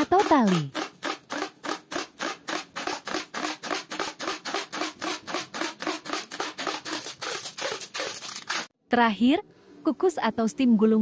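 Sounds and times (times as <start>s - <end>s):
packing tape pulled off roll: 0.8s - 8.7s.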